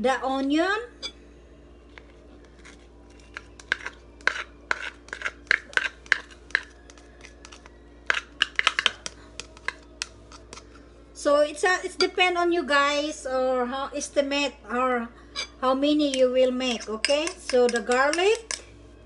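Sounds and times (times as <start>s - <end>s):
faint steady hum: 0.0s - 19.0s
spoon tapping on bowl: 16.8s - 18.6s.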